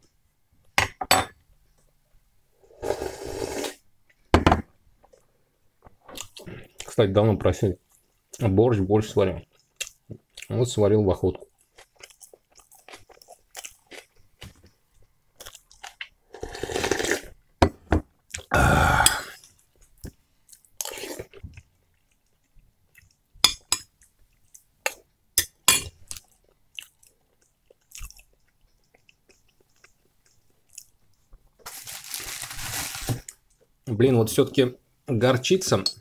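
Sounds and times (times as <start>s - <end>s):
man chewing: 11.6s - 16.2s, 26.0s - 31.6s.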